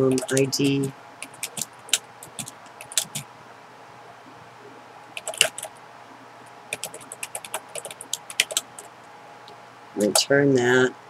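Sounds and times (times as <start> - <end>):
computer keyboard typing: 0.0 - 3.3, 5.2 - 5.7, 6.7 - 8.9.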